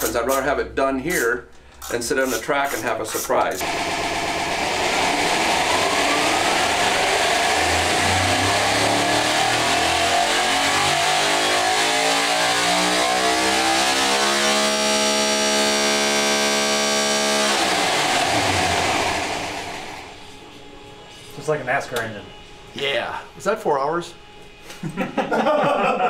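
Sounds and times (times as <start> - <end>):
engine valvetrain spinning: 3.6 - 20.2.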